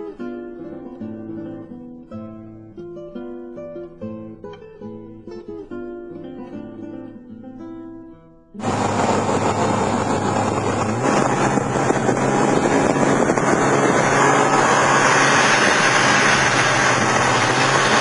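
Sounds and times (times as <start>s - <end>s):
snowmobile engine running: 8.6s - 18.0s
wind noise on microphone: 8.6s - 18.0s.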